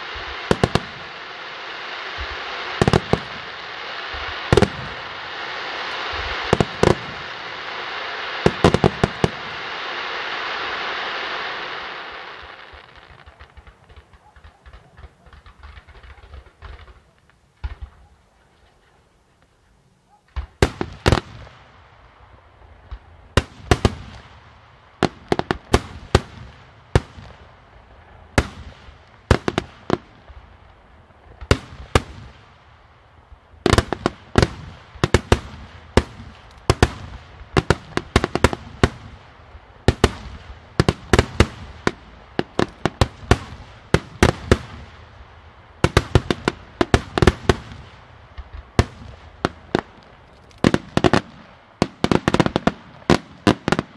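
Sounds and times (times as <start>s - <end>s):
firework shells bursting: 12.7s - 18.9s.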